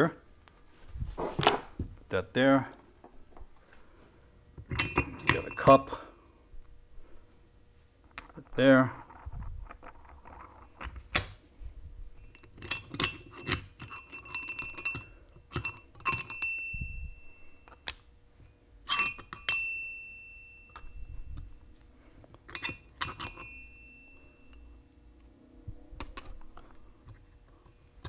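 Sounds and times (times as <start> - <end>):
metal parts clinking: 4.7 - 6.0, 8.0 - 11.4, 12.2 - 18.2, 18.9 - 19.9, 22.4 - 24.7, 26.0 - 27.8.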